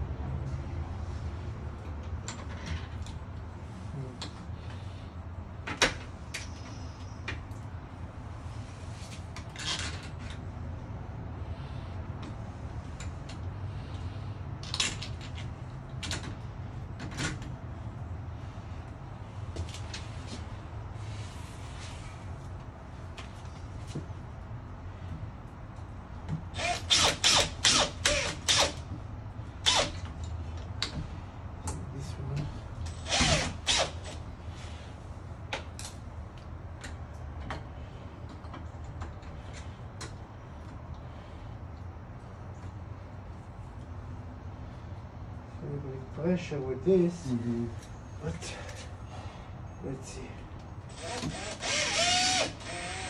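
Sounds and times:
cordless drill whirring: 26.6s - 28.8s, 33.0s - 34.2s, 50.9s - 53.0s.

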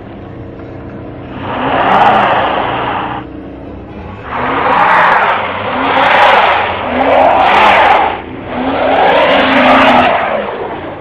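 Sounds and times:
truck engine revving: 0.0s - 11.0s
tires spinning in snow: 1.2s - 3.4s, 4.0s - 11.0s.

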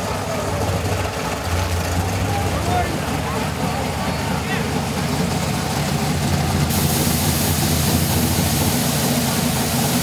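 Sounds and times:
drag car engine idling: 0.0s - 10.0s
loud nitrous purge hiss: 6.7s - 10.0s.

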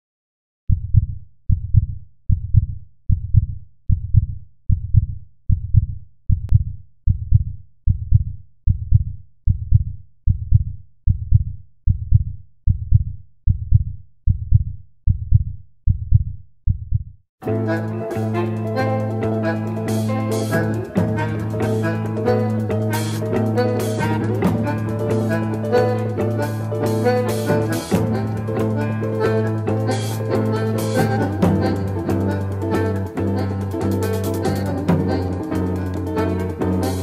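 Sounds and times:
low heartbeat-like thumps: 0.7s - 17.2s.

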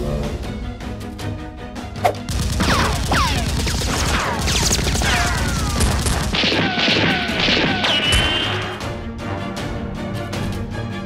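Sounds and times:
gunfire: 2.2s - 8.8s
bullets whistling past: 6.8s - 8.8s.

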